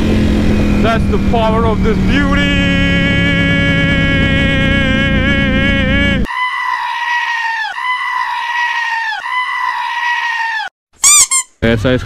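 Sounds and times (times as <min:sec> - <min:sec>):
motorcycle engine revving: 0:00.0 - 0:06.3
sheep bleating: 0:06.2 - 0:10.7.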